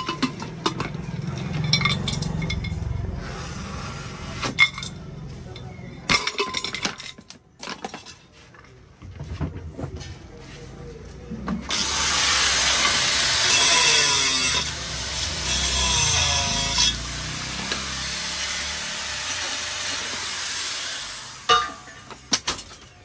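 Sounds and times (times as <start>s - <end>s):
metal cookware clinking: 0.0s - 2.9s, 5.6s - 8.1s, 21.5s - 22.9s
angle grinder grinding metal: 11.7s - 22.0s.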